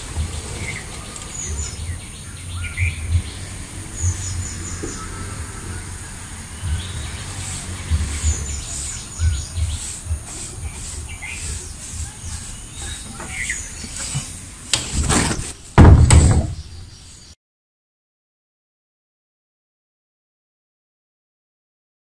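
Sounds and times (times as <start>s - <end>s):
small birds chirping: 0.0s - 14.8s, 15.6s - 17.4s
loud rustling and scraping: 0.0s - 17.2s.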